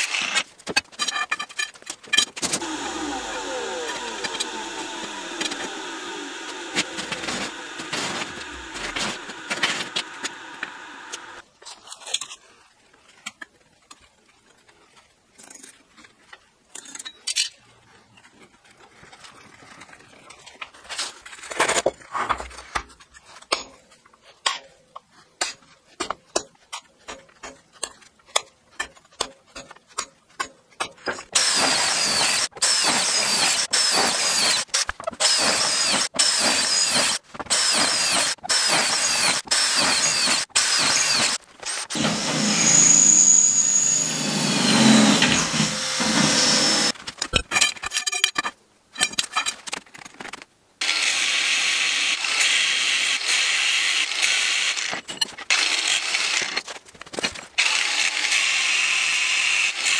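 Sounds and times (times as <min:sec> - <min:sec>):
angle grinder cutting steel: 0:02.5 - 0:11.4, 0:31.3 - 0:47.0, 0:50.8 - 0:56.6, 0:57.6 - 0:59.9
electric drill boring through steel: 0:02.6 - 0:11.4, 0:31.4 - 0:47.0, 0:50.8 - 0:56.6, 0:57.6 - 0:59.9.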